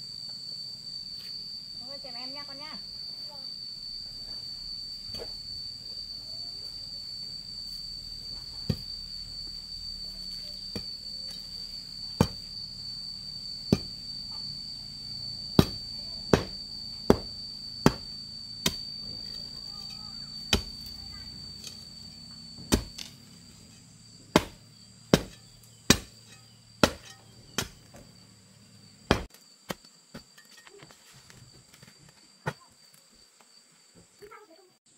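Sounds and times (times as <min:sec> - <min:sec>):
high-pitched insect drone: 0:00.0 - 0:34.9
tool striking something hard: 0:15.6 - 0:21.0, 0:22.6 - 0:23.2, 0:24.3 - 0:27.8.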